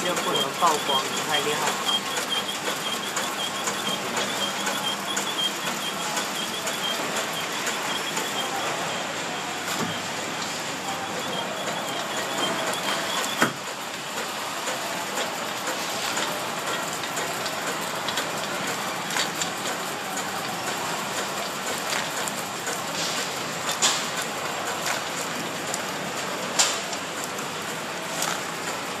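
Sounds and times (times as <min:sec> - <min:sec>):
sharp machine clicks: 0:00.0 - 0:22.8
packing machine clatter and hiss: 0:00.0 - 0:29.0.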